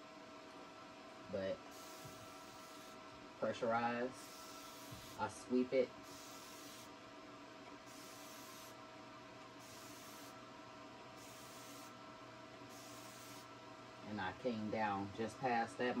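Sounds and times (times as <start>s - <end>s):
spray bottle misting hiss: 7.9s - 8.7s, 11.2s - 11.9s, 12.7s - 13.5s.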